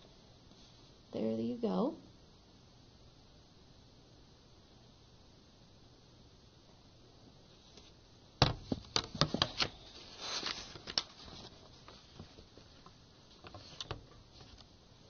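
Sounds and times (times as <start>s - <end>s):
short rustle: 9.7s - 12.5s.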